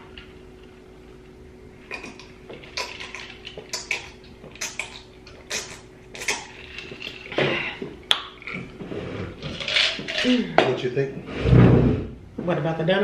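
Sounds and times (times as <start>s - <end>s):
people gulping a drink: 1.9s - 10.7s.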